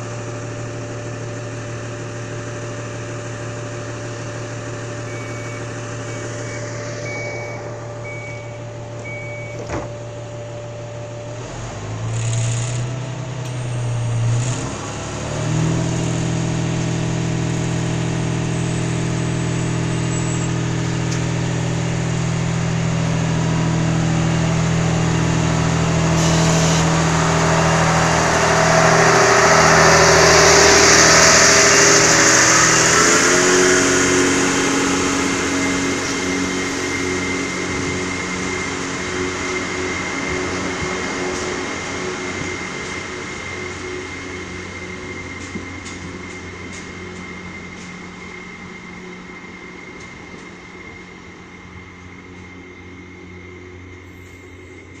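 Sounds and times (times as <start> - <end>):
train diesel engine idling: 0.0 - 55.0
short high beeps: 5.1 - 9.7.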